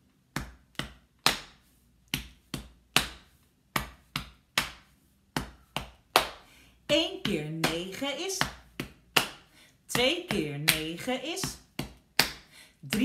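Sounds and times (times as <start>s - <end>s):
hands striking the body: 0.3s - 6.4s, 7.6s - 9.4s.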